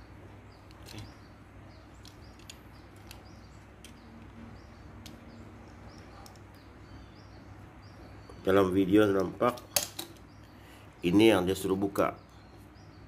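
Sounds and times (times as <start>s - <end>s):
steady low hum: 0.0s - 13.0s
small plastic parts clicking: 2.0s - 4.3s.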